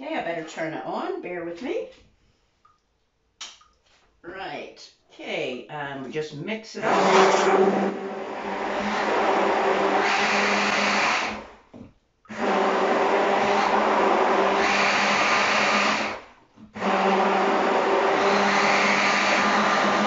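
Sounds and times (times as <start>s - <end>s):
stick blender motor whine: 6.8s - 11.6s, 12.3s - 20.0s.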